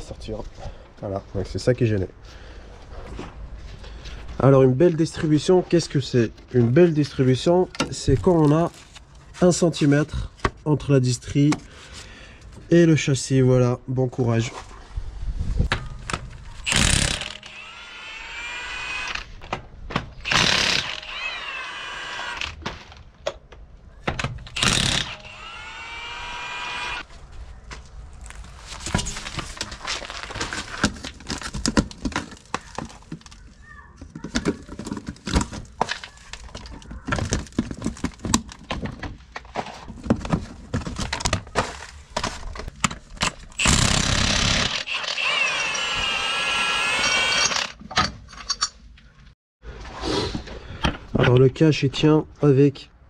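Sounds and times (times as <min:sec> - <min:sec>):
plastic cover cracking: 0:28.2 - 0:33.6, 0:34.2 - 0:38.8.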